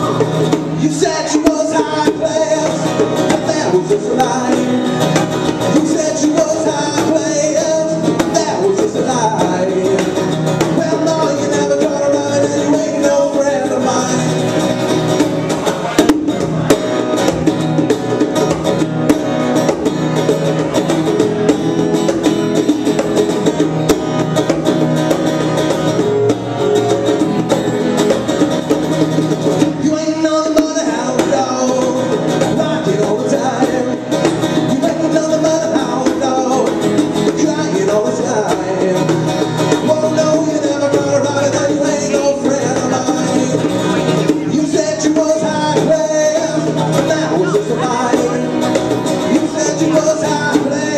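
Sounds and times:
person singing: 0.0s - 14.6s, 29.6s - 50.9s
bongos: 0.0s - 50.9s
strummed acoustic guitar: 0.0s - 50.9s.

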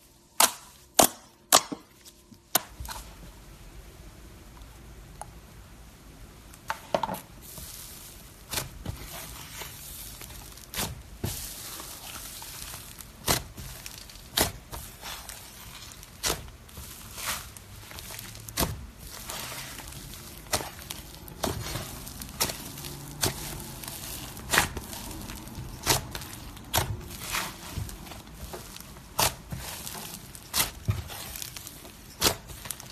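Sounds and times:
slime squishing and popping: 10.2s - 32.9s.

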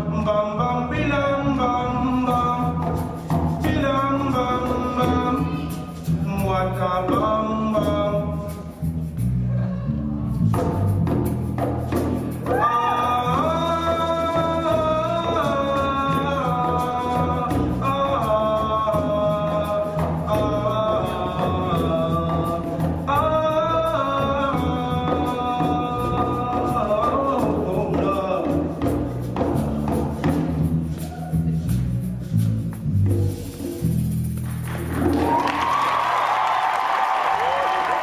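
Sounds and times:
man singing: 0.0s - 8.9s, 12.5s - 29.1s
electric bass: 0.0s - 37.7s
shakers: 2.1s - 38.0s
djembe drumming: 9.4s - 36.7s.

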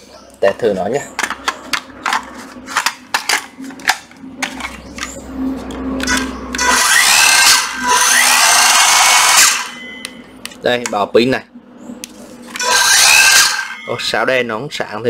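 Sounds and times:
tool handling clicks and knocks: 1.1s - 6.7s
circular saw motor whirring: 2.8s - 10.4s, 12.4s - 14.3s.

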